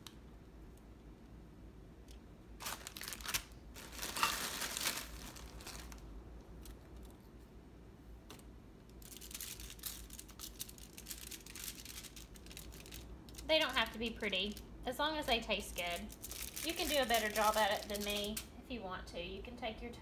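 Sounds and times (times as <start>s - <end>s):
plastic packet crinkling: 2.6s - 7.0s, 8.9s - 14.8s, 15.6s - 18.5s.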